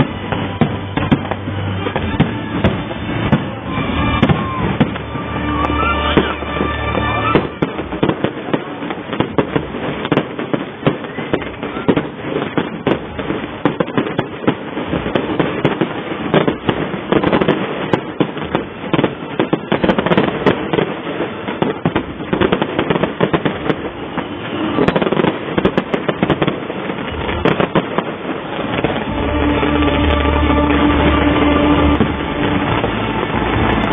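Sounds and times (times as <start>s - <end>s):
fireworks crackling and banging: 0.0s - 33.9s.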